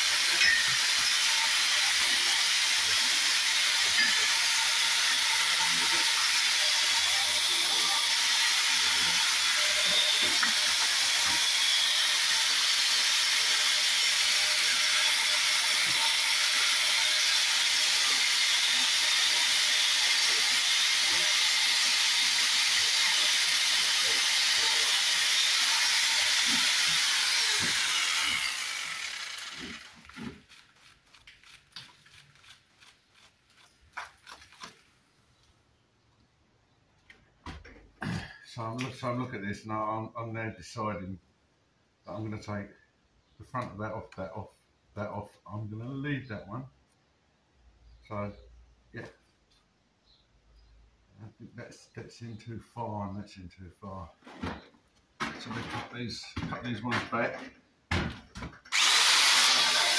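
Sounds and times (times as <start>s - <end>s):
angle grinder cutting brick: 0.0s - 34.7s, 58.7s - 59.9s.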